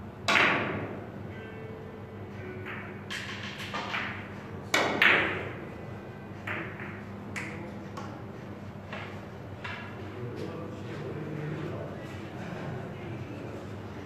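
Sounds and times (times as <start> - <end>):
cue striking ball: 0.2 - 1.1, 2.4 - 5.8, 6.4 - 8.2
billiard balls clicking: 2.6 - 5.5.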